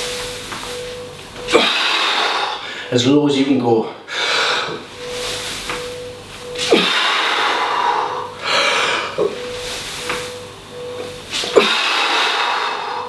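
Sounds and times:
man breathing hard: 0:01.5 - 0:02.9, 0:04.0 - 0:04.8, 0:06.6 - 0:09.3, 0:11.4 - 0:13.0.

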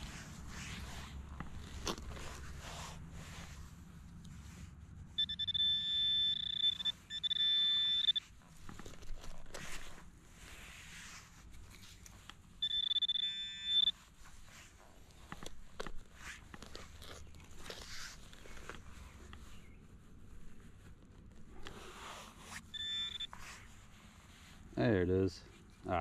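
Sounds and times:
hand digger scraping soil: 0:00.0 - 0:03.7
high steady electronic tone: 0:05.2 - 0:08.2, 0:12.6 - 0:13.9, 0:22.7 - 0:23.3.

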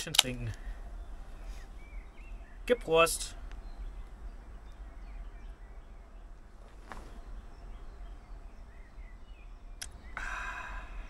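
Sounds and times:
steady low rumble: 0:00.0 - 0:11.0
faint bird chirps: 0:00.2 - 0:11.0.

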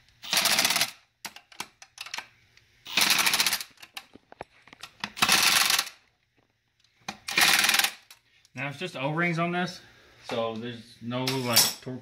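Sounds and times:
ratchet wrench clicking: 0:07.2 - 0:08.2.

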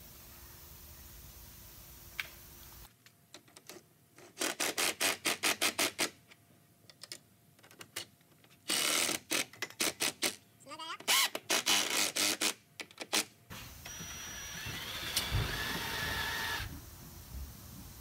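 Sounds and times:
cordless drill driving screws: 0:08.7 - 0:10.3, 0:11.1 - 0:16.7.

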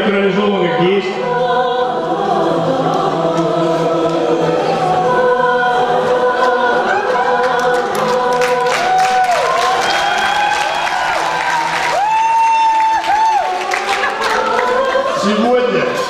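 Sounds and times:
choir singing: 0:00.0 - 0:16.0
scattered clapping: 0:07.4 - 0:15.1.

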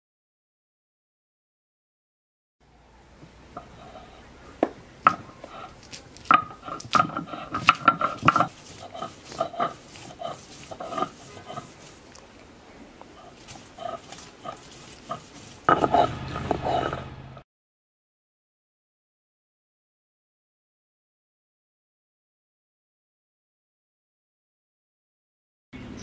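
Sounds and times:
stone knocking and scraping on stone: 0:04.6 - 0:12.0, 0:13.3 - 0:17.1.

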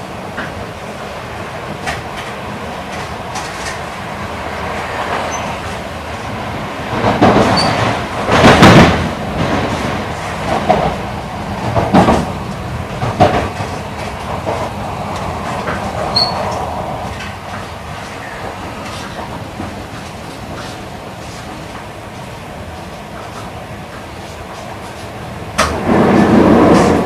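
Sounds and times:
train running noise inside car: 0:00.0 - 0:27.0
wheel clacks on track: 0:06.9 - 0:11.0, 0:11.6 - 0:17.8, 0:23.1 - 0:27.0.

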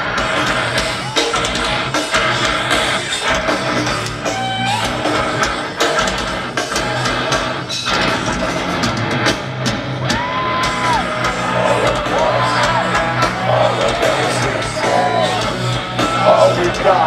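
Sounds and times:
distorted electric guitars: 0:00.0 - 0:17.0
pounding drums: 0:00.0 - 0:17.0
voices yelling: 0:00.6 - 0:05.9, 0:10.0 - 0:17.0.

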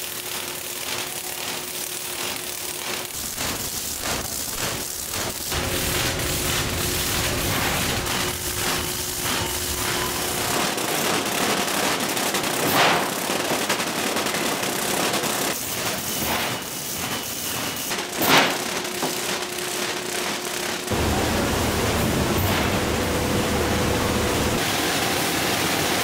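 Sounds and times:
machinery crackling rattle: 0:00.0 - 0:24.7
faint steady machine hum: 0:19.5 - 0:26.0.

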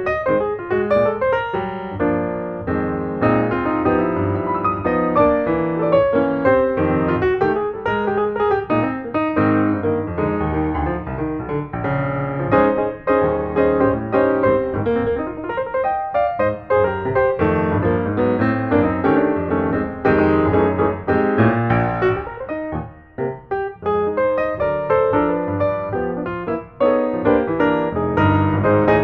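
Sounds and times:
piano music: 0:00.0 - 0:29.0.

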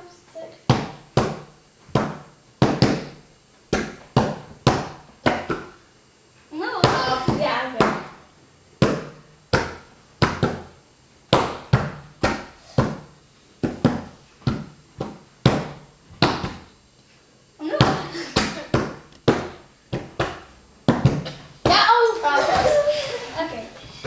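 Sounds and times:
hands slapping on a tabletop: 0:00.7 - 0:05.8, 0:11.3 - 0:16.7, 0:17.8 - 0:21.4.

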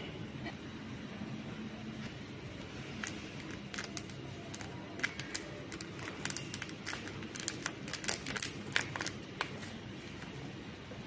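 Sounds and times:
plastic cup crackling: 0:02.9 - 0:09.8.

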